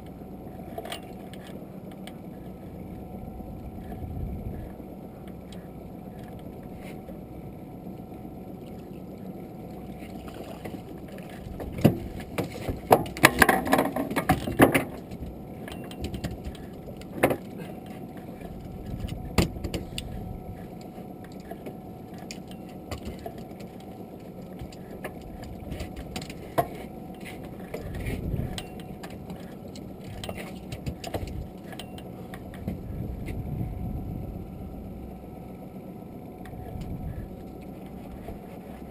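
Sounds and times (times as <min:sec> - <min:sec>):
wind: 0:00.0 - 0:38.9
knocks and rattles on boat: 0:09.9 - 0:33.6.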